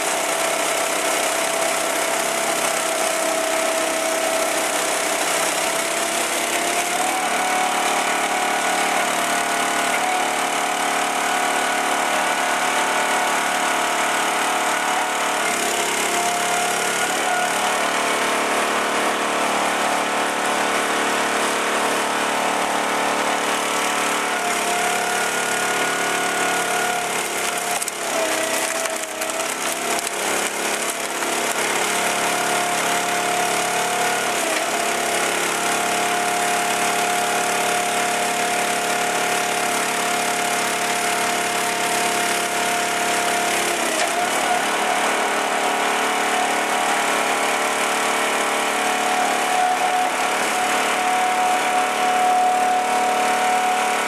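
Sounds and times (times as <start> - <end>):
wood cracking and splintering: 0.1 - 20.2, 22.7 - 45.3, 48.7 - 53.8
engine and hydraulic pump whine: 1.9 - 54.0.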